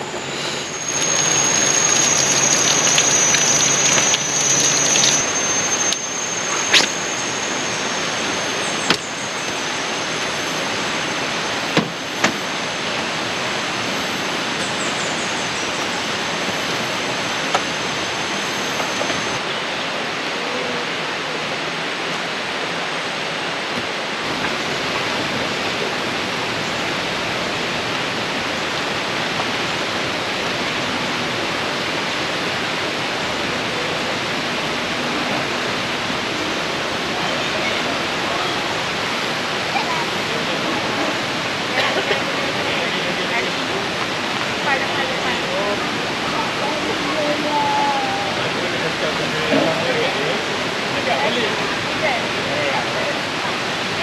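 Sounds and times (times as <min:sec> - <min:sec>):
thin high tone: 0:00.0 - 0:20.8
water rushing: 0:00.0 - 0:54.0.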